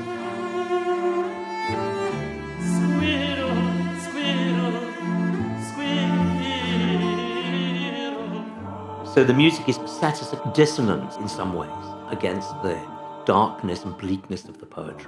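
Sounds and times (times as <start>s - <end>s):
cellos playing low line: 0.0s - 14.7s
tenor singing with vibrato: 2.5s - 14.6s.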